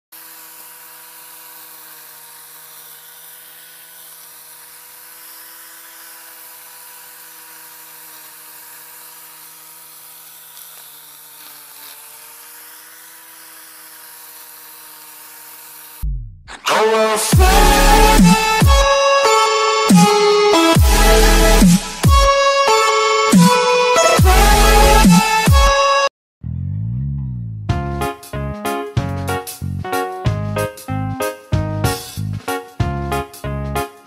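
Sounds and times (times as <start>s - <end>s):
angle grinder motor whining: 0.1s - 26.0s.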